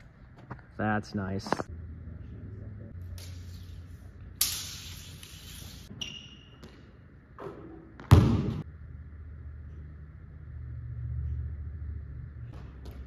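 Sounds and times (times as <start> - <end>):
basketball thud on hardwood floor: 8.0 - 8.6.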